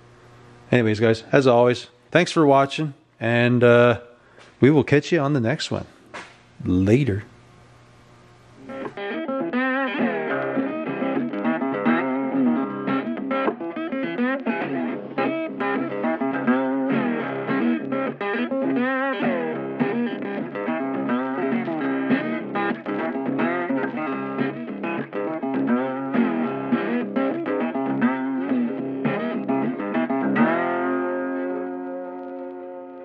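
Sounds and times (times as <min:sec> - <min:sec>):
electric guitar lead: 0:08.6 - 0:33.0.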